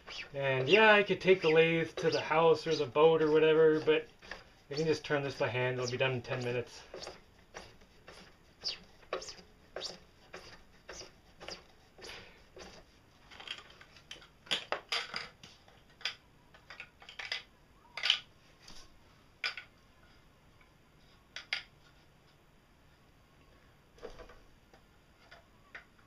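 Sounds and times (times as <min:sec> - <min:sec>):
plastic parts scraping: 0:00.0 - 0:18.8
plastic parts clicking: 0:13.3 - 0:18.3.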